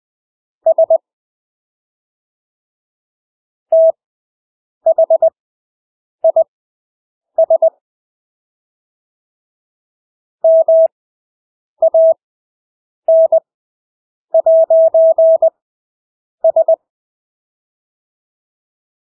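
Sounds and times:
morse code beeps: 0.7s - 1.0s, 3.7s - 4.0s, 4.9s - 5.3s, 7.4s - 7.7s, 10.4s - 10.9s, 11.8s - 12.2s, 13.1s - 13.4s, 14.4s - 15.5s, 16.4s - 16.8s.

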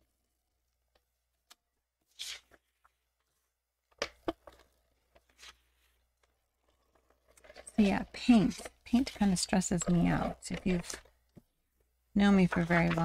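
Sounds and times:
paper rustling and sliding: 2.0s - 3.0s, 5.2s - 6.0s, 12.4s - 13.0s.

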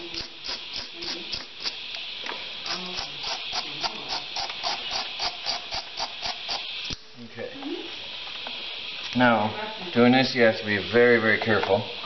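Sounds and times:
wire brush scrubbing metal: 0.0s - 1.9s.

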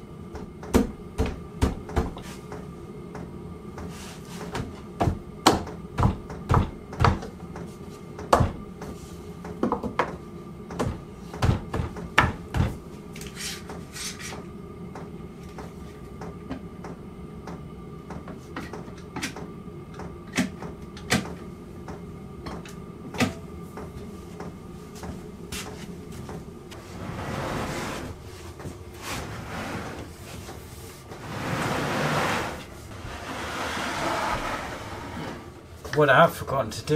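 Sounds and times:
faint steady hum: 0.0s - 36.9s.

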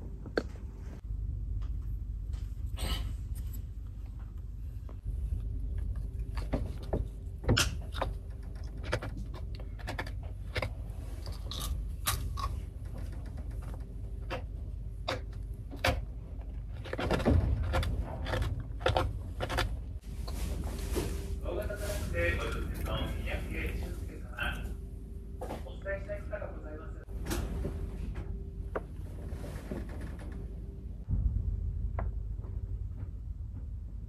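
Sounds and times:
steady low hum: 0.0s - 34.0s
hard biscuit crunching: 5.3s - 20.0s.

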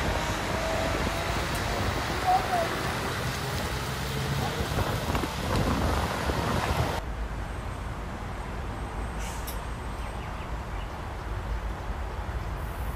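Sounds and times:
wind and rain rushing: 0.0s - 9.9s.

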